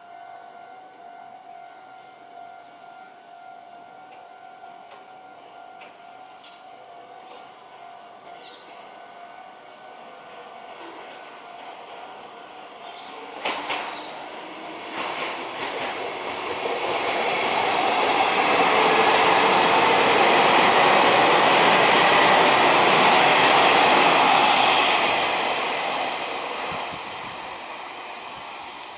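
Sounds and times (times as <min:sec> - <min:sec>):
electric train rumble: 0:09.2 - 0:28.9.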